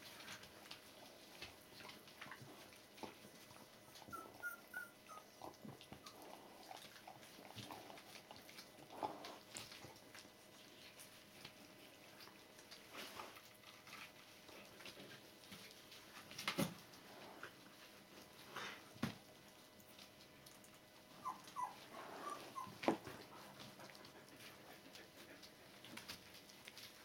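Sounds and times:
puppies squeaking: 3.9s - 5.5s, 21.2s - 22.9s.

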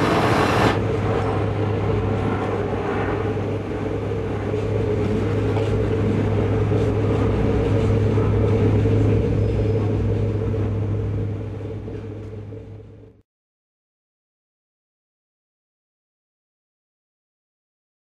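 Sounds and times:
vehicle engine droning: 0.0s - 2.8s, 3.4s - 13.2s.

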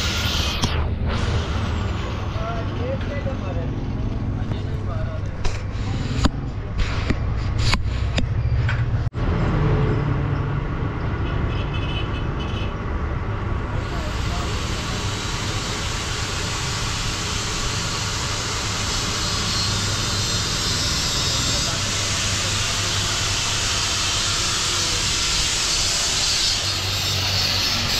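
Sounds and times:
loud steady hiss: 0.0s - 2.9s, 13.7s - 27.9s
engine rumble: 0.0s - 11.7s.

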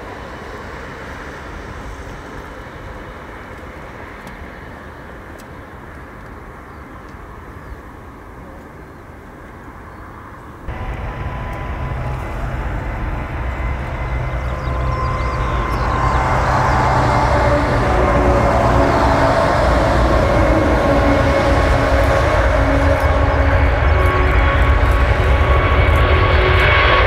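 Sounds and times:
jet engines deep rumble: 0.0s - 27.0s
jet engines whining: 10.5s - 27.0s.

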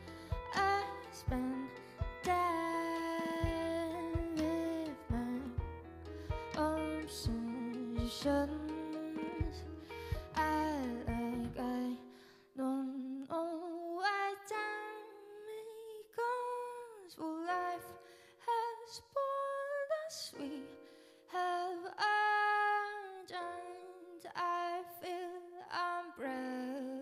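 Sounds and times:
double bass notes: 0.0s - 11.8s
quiet keyboard accompaniment: 0.0s - 12.0s
woman singing jazz: 0.0s - 27.0s.

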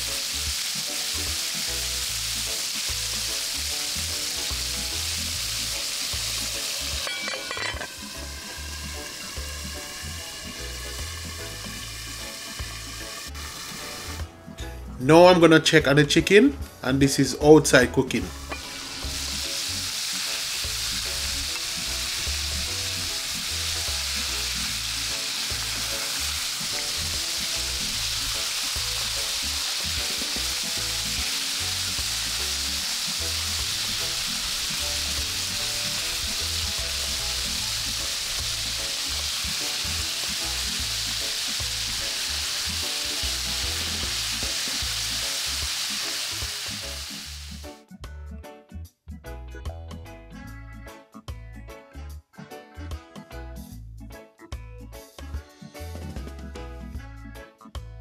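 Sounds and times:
chicken deep-frying in oil: 0.0s - 14.2s, 18.4s - 47.6s.

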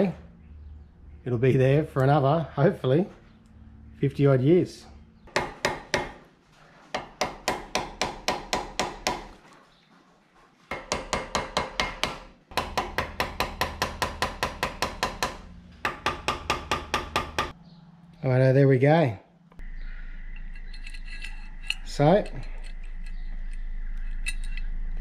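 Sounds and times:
hammer tapping metal: 7.0s - 9.3s, 10.7s - 17.6s.

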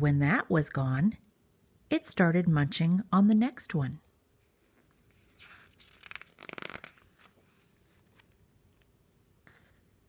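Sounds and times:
paper page turning: 5.1s - 8.9s.

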